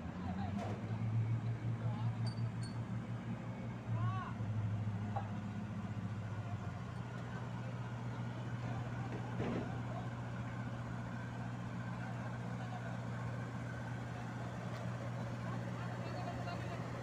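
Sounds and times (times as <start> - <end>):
diesel engine idling: 2.9 - 17.0.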